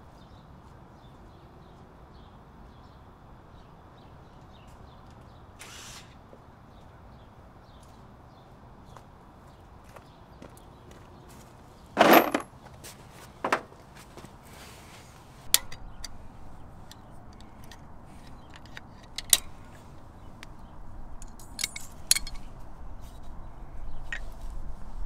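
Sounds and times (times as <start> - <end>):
metal tools clattering: 12.0 - 12.5, 21.2 - 22.5.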